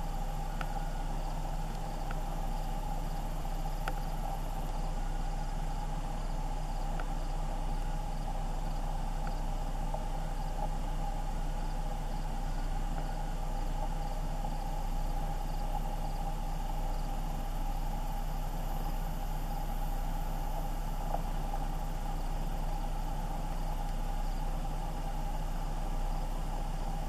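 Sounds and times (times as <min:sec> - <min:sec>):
faint insect chirping: 0:00.0 - 0:27.0
steady low hum: 0:00.0 - 0:27.0.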